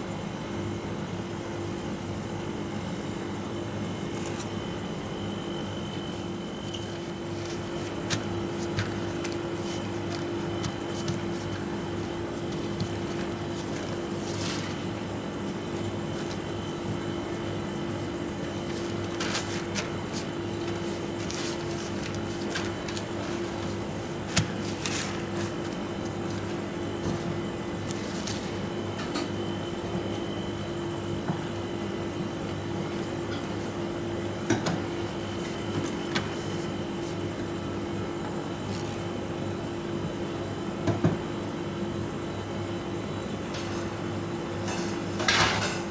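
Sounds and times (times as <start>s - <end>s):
steady machine hum: 0.0s - 45.9s
paper rustling: 4.1s - 4.6s, 6.6s - 15.0s, 18.6s - 28.6s.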